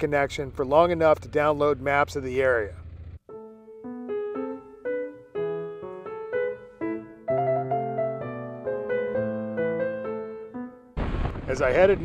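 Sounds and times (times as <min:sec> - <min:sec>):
piano music: 0:03.3 - 0:11.0.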